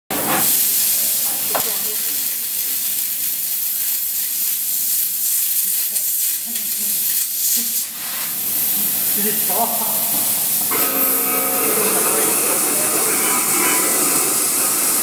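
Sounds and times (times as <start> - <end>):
laser cutting steel hiss: 5.2 - 15.0.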